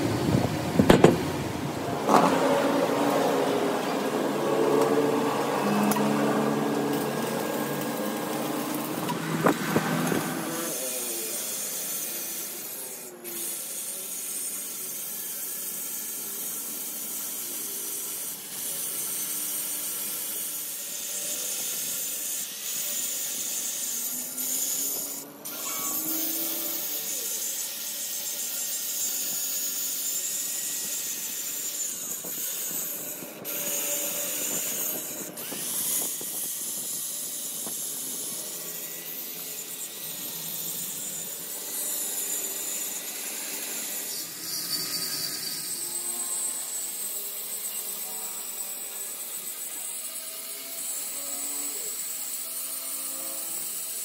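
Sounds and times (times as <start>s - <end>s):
angle grinder grinding steel: 0.0s - 54.0s
loud knock: 0.8s - 1.2s.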